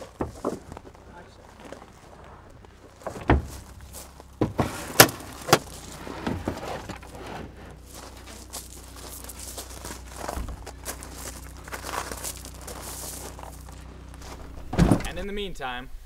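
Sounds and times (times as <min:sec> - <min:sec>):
sharp knocks and clunks: 0:00.0 - 0:01.0, 0:03.0 - 0:07.6, 0:14.6 - 0:15.3
handling and rustling: 0:00.0 - 0:15.1.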